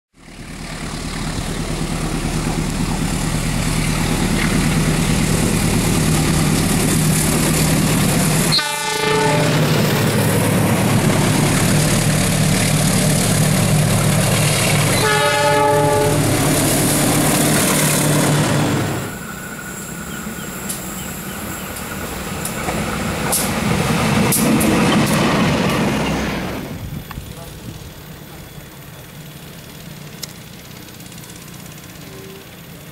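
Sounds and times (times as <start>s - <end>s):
locomotive engine drone: 0.1s - 32.9s
wheel and rail noise: 0.2s - 32.9s
locomotive horn: 8.4s - 9.9s, 14.8s - 16.6s
carriages with clicking wheels: 28.3s - 32.9s.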